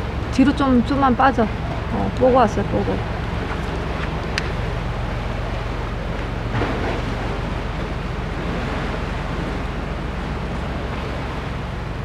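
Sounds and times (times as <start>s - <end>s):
waves washing on rocky shore: 3.0s - 12.0s.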